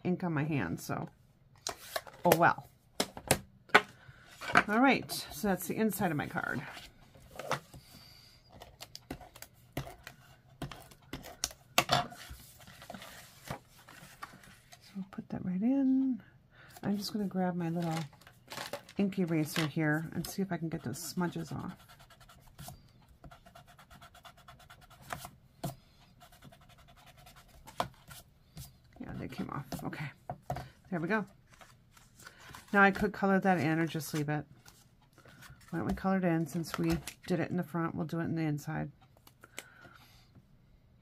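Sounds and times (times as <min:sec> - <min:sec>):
paper and tools clicking and tapping: 0:08.5 - 0:14.8, 0:21.2 - 0:30.8, 0:34.1 - 0:37.3.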